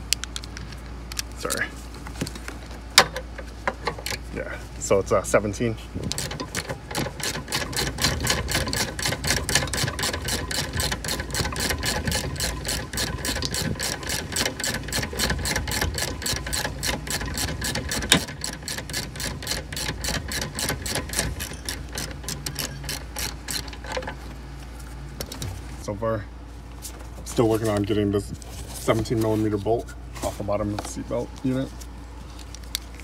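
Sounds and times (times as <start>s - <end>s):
socket ratchet clicking: 6.1s - 24.1s.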